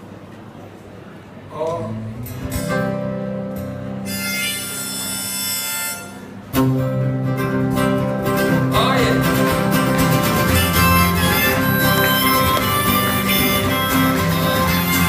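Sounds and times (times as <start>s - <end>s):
acoustic guitar strumming: 1.8s - 15.0s.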